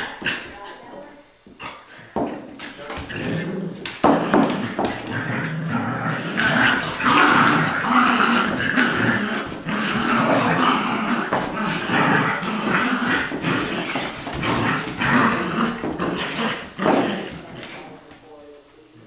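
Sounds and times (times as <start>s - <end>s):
dogs growling in play: 0.0s - 18.2s.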